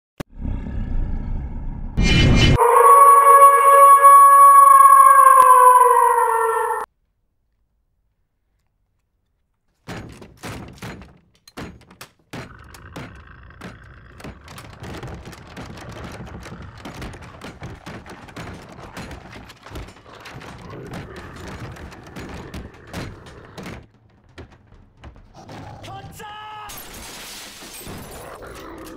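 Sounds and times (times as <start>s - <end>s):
banging and impacts: 9.7s - 26.2s.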